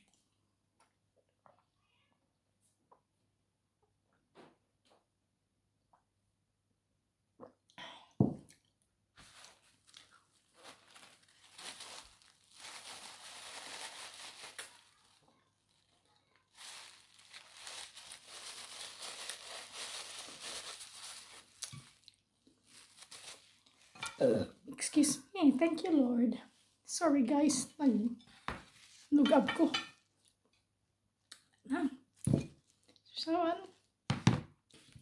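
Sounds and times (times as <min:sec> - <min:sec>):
paper napkin rustling: 0:16.5 - 0:22.0.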